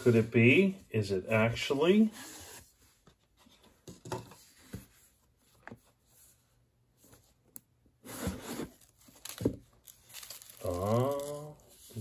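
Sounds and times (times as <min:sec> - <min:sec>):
cardboard rustling: 0:08.0 - 0:12.0.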